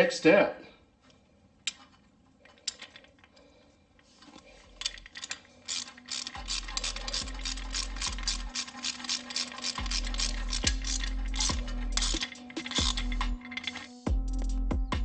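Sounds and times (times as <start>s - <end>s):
ratchet wrench clicking: 4.2s - 14.1s.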